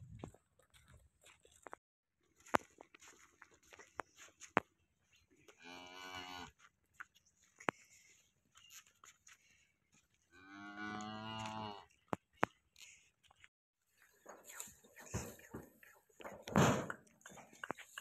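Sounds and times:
cattle mooing: 5.6s - 6.5s, 10.4s - 11.9s.

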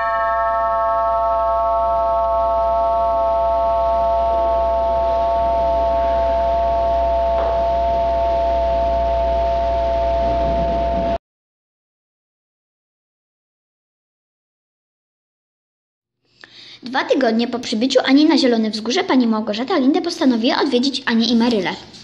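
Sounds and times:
bell-like held chord: 0.0s - 10.9s
low hum: 0.0s - 11.2s.

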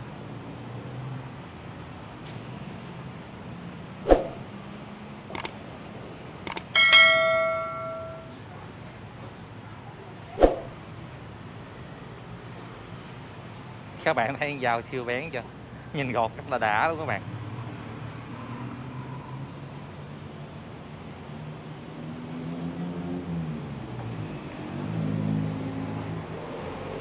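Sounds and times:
street noise hum: 0.0s - 27.0s
bell-like metallic ring: 6.5s - 8.4s.

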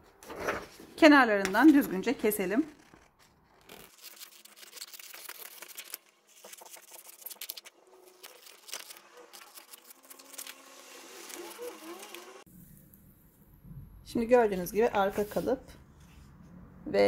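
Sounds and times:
paper rustling: 0.2s - 12.4s
scissors snipping paper: 1.5s - 12.4s.

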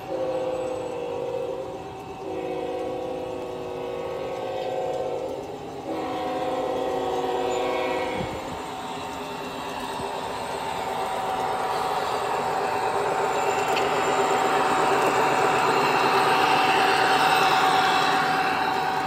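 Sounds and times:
model train horn blasts: 0.0s - 8.6s
model train running sound: 0.0s - 19.0s.

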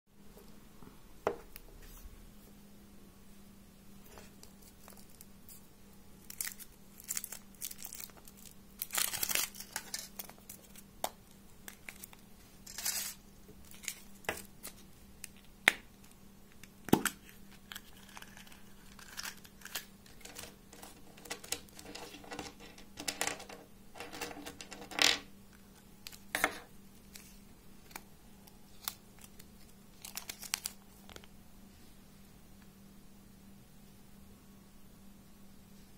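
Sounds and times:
foil wrapper tearing and crinkling: 6.2s - 10.8s, 11.7s - 14.8s, 17.2s - 20.4s, 28.7s - 30.8s.

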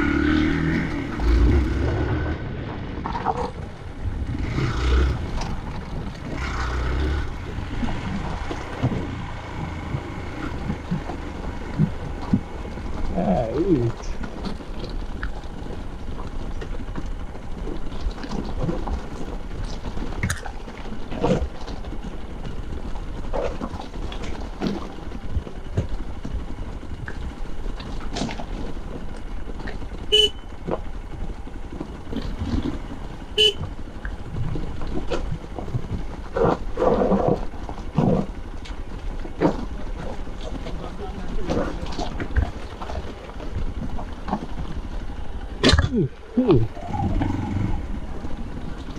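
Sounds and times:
motorcycle engine running: 0.0s - 48.9s
short horn beeps: 30.1s - 30.5s, 33.4s - 33.6s.

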